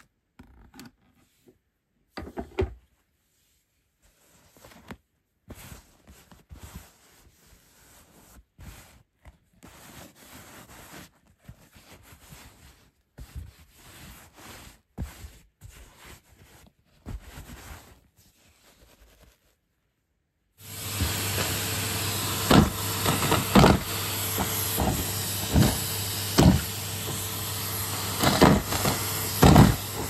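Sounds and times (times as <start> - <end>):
rustling and scraping: 0.5 - 19.8.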